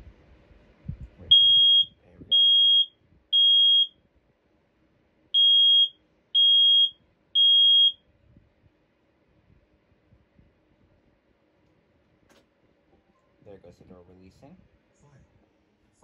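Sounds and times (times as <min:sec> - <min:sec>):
smoke alarm beeping: 0:01.3 - 0:04.0, 0:05.4 - 0:08.0.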